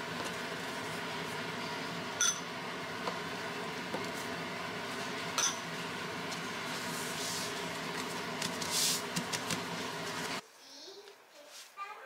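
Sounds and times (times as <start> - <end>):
pastry sheet rustling: 6.2 - 10.4.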